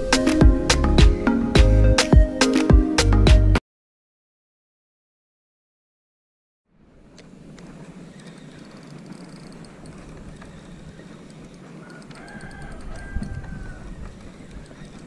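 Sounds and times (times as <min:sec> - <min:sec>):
scattered clicks: 0:07.2 - 0:15.0
rooster crowing faintly: 0:10.5 - 0:15.0.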